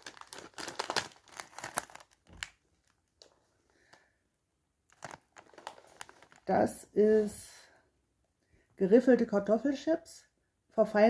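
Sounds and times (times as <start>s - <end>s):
crisp bag crinkling: 0.0s - 4.0s, 4.9s - 7.3s.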